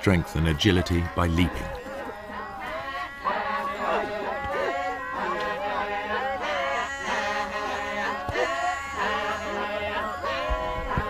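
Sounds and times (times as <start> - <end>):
men chanting together: 0.4 - 11.0.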